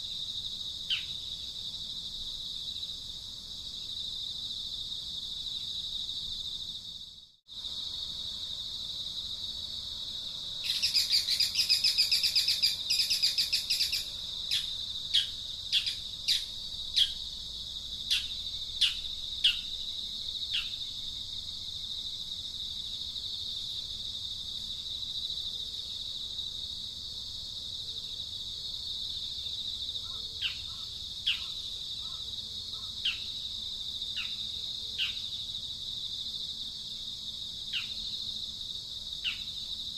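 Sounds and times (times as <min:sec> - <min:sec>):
rapid pulsing insect trill: 0:00.0 - 0:39.9
high-pitched insect drone: 0:07.8 - 0:21.8
falling bird calls: 0:30.0 - 0:33.4.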